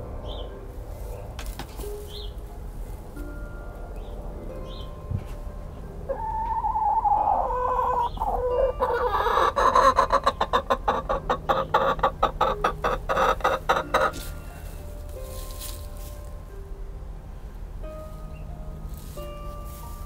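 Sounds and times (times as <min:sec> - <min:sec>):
hen clucking rapidly: 0:06.1 - 0:14.4
hen calling: 0:06.1 - 0:14.9.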